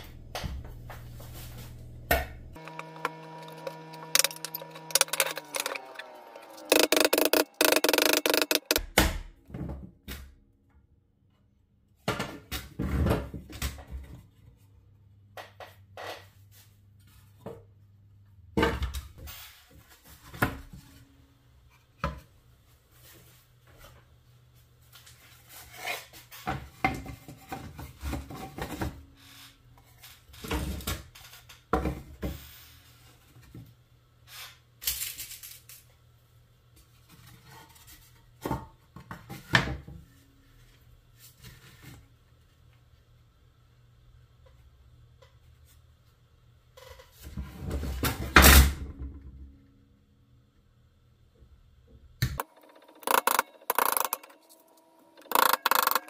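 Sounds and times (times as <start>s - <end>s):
hard objects knocking and clattering: 2.6s - 6.0s, 6.6s - 8.9s, 52.4s - 54.4s, 55.2s - 56.0s.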